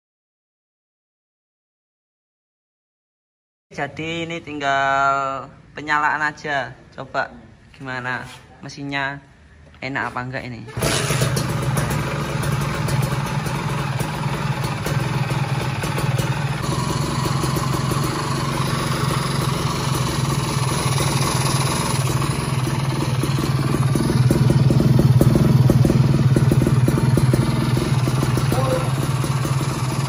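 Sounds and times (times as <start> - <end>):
two-stroke engine idling: 10.7 - 30.0.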